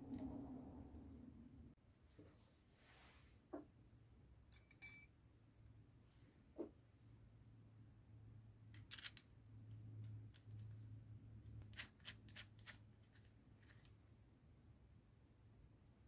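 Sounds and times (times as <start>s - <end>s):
low steady hum: 0.0s - 3.1s.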